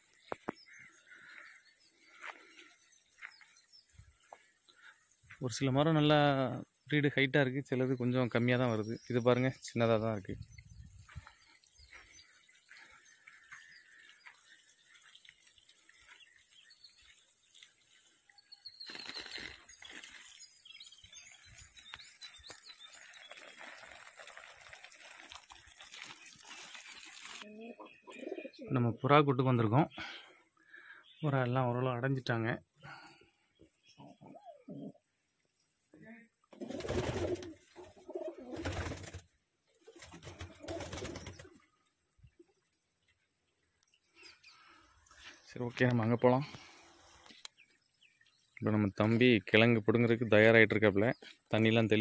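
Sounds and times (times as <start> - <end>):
pigeons cooing: 27.5 - 28.7, 34.0 - 35.0, 36.6 - 38.9, 40.2 - 41.5.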